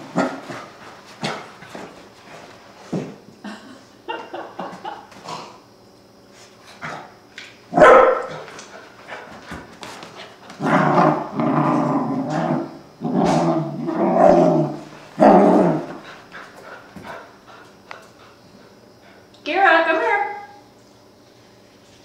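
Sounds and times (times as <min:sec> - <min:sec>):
small dog barking: 0:07.7 - 0:08.4
dog growling: 0:10.6 - 0:16.8.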